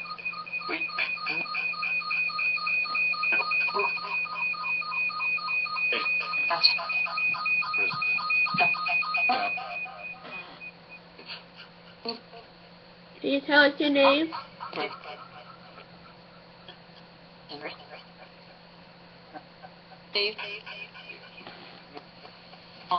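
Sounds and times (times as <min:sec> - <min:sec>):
rapid electronic chirping beeps: 0:00.0 - 0:11.0, 0:20.2 - 0:21.7.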